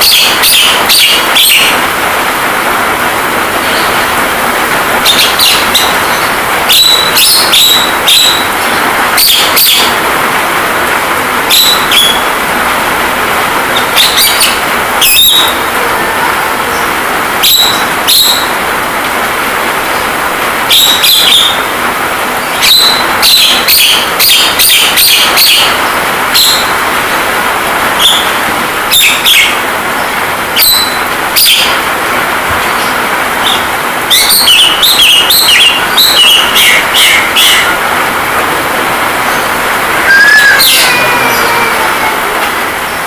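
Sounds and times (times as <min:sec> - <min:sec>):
rain hissing: 0:00.0 - 0:43.0
bird giving sharp calls: 0:40.0 - 0:42.3.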